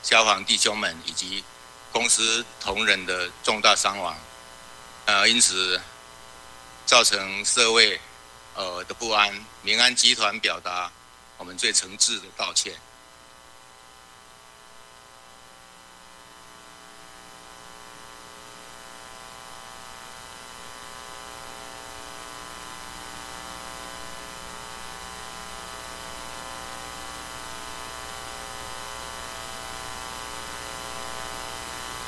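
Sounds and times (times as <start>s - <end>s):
faint hiss: 0.0s - 12.9s
electrical mains hum: 0.0s - 32.0s.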